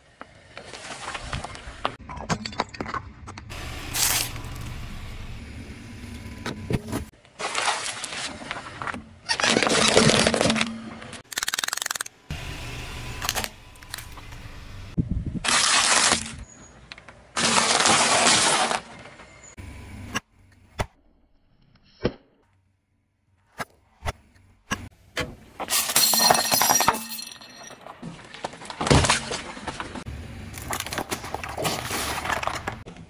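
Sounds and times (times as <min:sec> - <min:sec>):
tyre crushing plastic objects: 0:17.4 - 0:18.9, 0:27.8 - 0:32.9.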